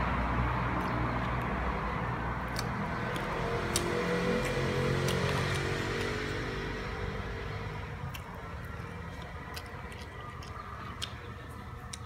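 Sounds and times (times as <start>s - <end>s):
chewing chicken wings clicks: 2.5s - 6.3s, 8.0s - 12.0s.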